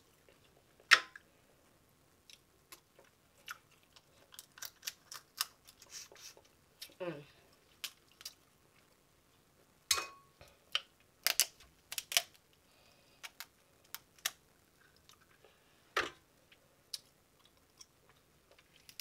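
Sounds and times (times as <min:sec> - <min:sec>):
crab shells cracking: 0:03.4 - 0:05.9, 0:07.8 - 0:08.4, 0:10.7 - 0:12.4, 0:13.2 - 0:14.4.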